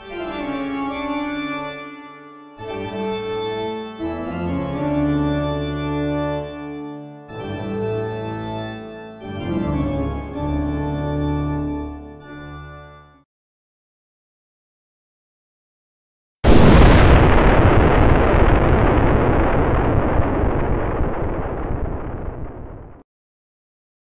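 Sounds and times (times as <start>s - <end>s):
music of sustained chords: 0.0s - 13.2s.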